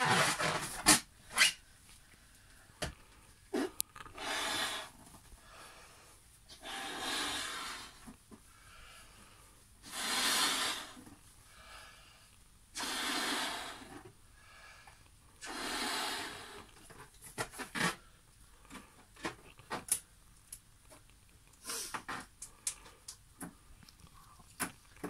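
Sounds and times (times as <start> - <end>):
balloon latex squeaking: 0.0 - 1.6
breath blown into balloon: 3.5 - 5.0, 6.5 - 8.1, 9.8 - 11.1, 12.8 - 14.0, 15.4 - 16.8.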